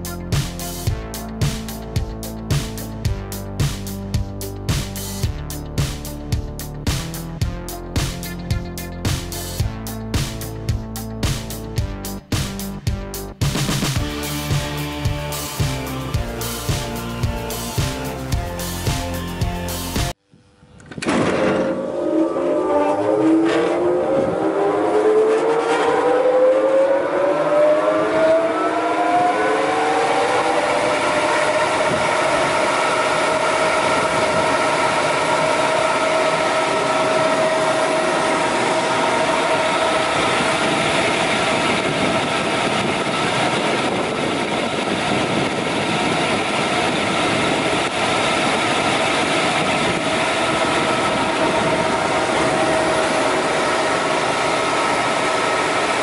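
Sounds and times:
sander motor whining: 20.6s - 56.0s.

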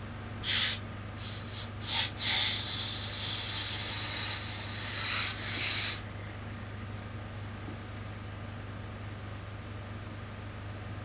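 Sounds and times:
steam iron hissing: 0.4s - 6.1s.

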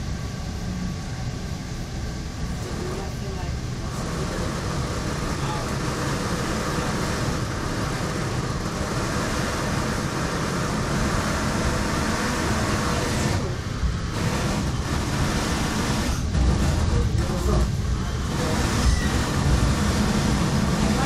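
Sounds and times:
train rumble and hiss: 0.0s - 21.0s.

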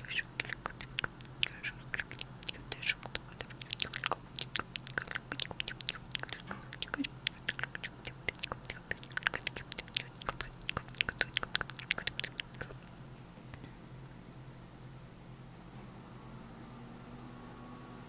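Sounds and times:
wet mouth clicks and pops: 0.4s - 12.8s.

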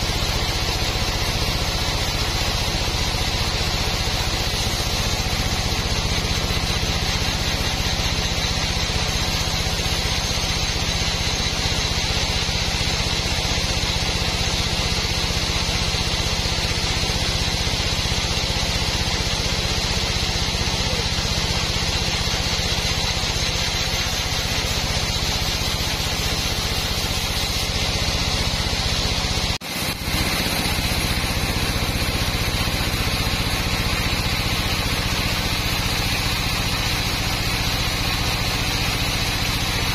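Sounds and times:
band saw drone: 0.0s - 39.9s
high whine: 20.6s - 39.9s.

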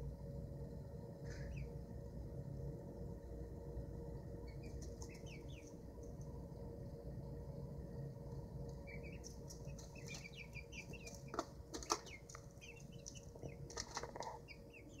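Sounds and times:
chicks peeping: 1.3s - 1.8s, 4.4s - 6.4s, 8.4s - 15.0s.

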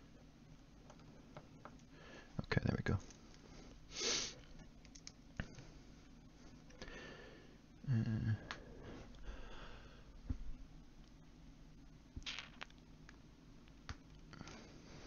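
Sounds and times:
person humming low: 7.8s - 8.7s
breathy exhale: 8.6s - 10.1s.

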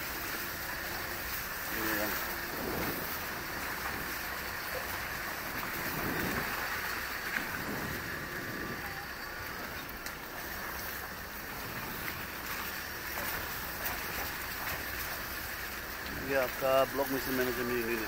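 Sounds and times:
road and engine noise: 0.0s - 18.0s
wind rushing over microphone: 1.4s - 12.6s.

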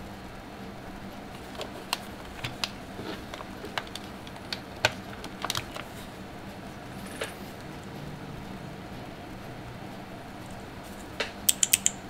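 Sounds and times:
keyboard clicks and taps: 11.2s - 12.0s.

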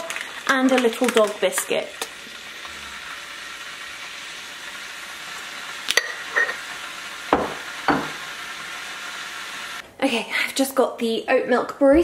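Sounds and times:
kettle hissing toward the boil: 0.0s - 9.8s.

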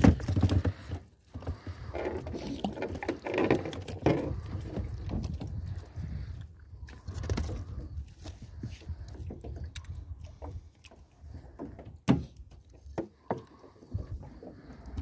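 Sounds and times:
wind rumble on microphone: 4.0s - 11.6s.

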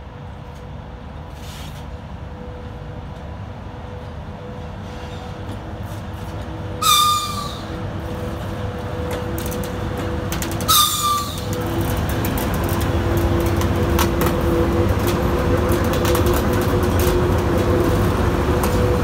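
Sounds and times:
electric locomotive hum and rumble: 0.0s - 19.0s
high-pitched train whistle: 6.8s - 7.8s, 10.6s - 11.6s.

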